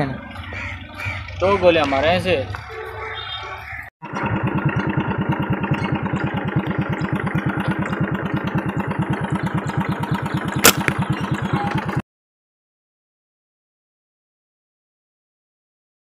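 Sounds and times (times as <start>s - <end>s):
engine running with fast thumping: 4.0s - 12.0s
sharp click: 10.6s - 11.0s.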